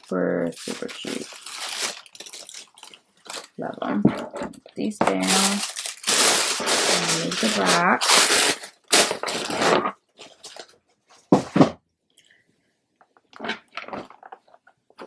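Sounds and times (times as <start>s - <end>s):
paper crinkling and rustling: 0.0s - 10.8s.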